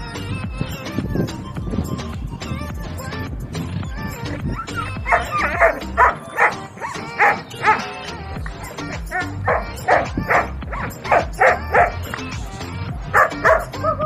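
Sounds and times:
background music: 0.0 - 14.0
large dog barking: 5.0 - 7.9, 9.1 - 12.0, 13.1 - 14.0.

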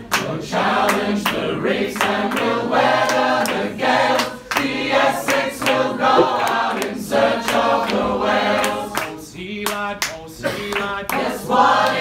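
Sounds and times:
group singing a cappella: 0.0 - 12.0
hand claps: 6.1 - 8.0, 8.6 - 12.0.

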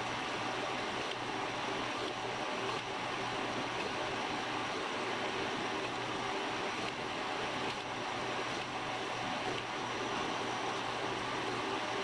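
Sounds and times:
machine spindle humming: 0.0 - 12.0.

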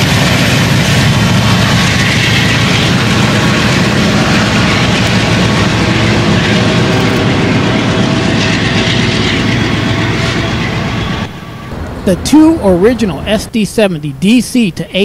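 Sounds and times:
diesel locomotive engines: 0.0 - 15.0
wheels rumbling on rail: 0.0 - 15.0.

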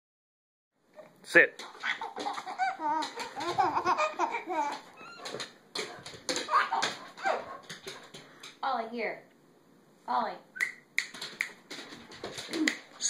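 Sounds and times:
baby giggling and laughing: 1.7 - 5.1.

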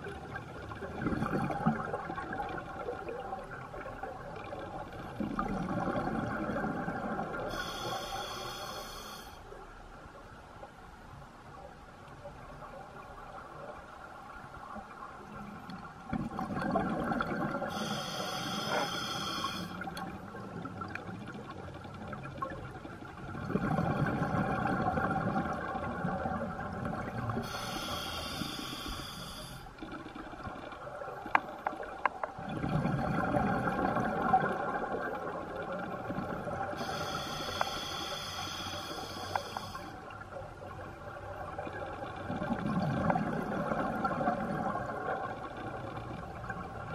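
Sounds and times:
exhaled bubbles rushing: 0.8 - 3.4, 16.1 - 17.7, 32.4 - 36.7
regulator air hiss: 7.5 - 9.4, 17.7 - 19.8, 27.4 - 29.7, 36.8 - 40.0.

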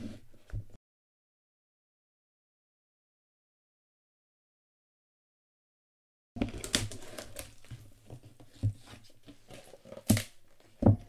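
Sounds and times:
cardboard and tape tearing: 6.4 - 7.8.

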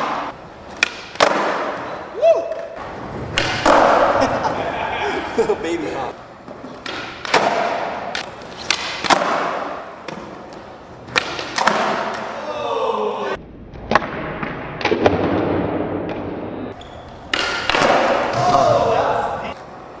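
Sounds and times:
skateboard wheels rolling: 0.0 - 5.0
skateboard clacking: 3.3 - 4.3.

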